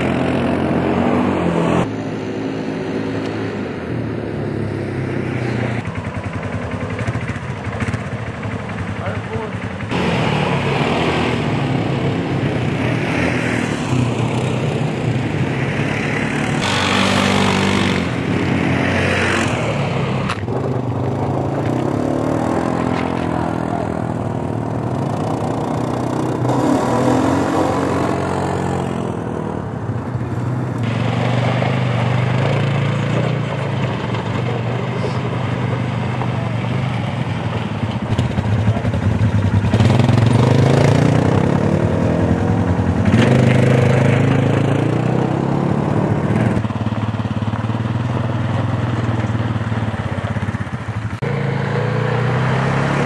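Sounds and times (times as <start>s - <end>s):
quad bike engines revving: 0.0s - 53.0s.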